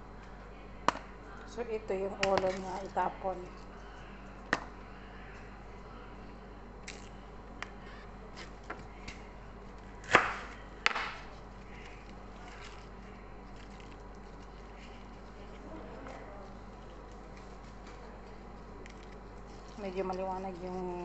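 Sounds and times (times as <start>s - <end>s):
hands breaking vegetable leaves: 6.8s - 7.2s.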